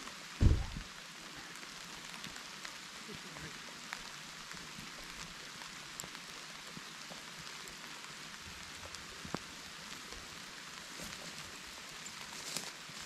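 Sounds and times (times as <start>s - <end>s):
light rain pattering: 0.0s - 13.0s.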